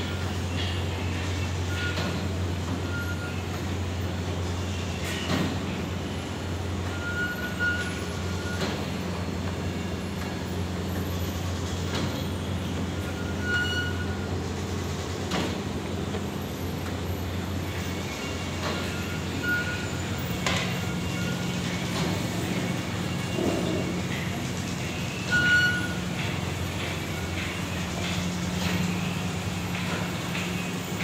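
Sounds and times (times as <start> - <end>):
brief high squeaks: 13.0 - 14.3, 18.1 - 22.1.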